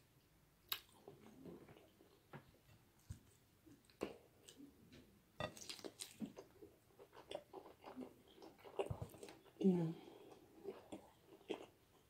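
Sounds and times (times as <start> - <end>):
person chewing with wet smacks: 0.7 - 2.2, 5.4 - 12.0.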